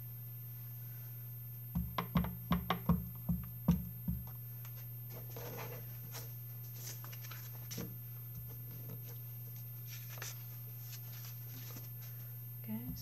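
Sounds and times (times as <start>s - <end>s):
steady low hum: 0.0s - 13.0s
paper rustling and tapping: 2.0s - 9.2s.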